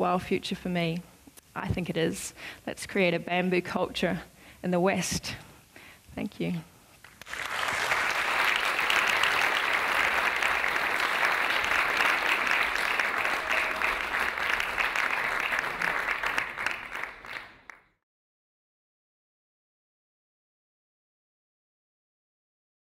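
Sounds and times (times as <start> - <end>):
audience applauding: 7.0 - 17.9.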